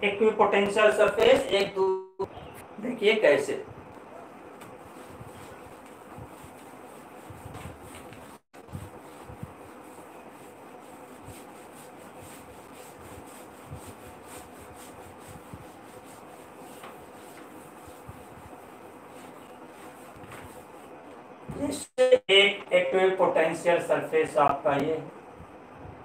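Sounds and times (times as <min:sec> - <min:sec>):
steady room hiss: 0:02.3 - 0:26.0
marker rubbing on whiteboard: 0:04.7 - 0:20.9.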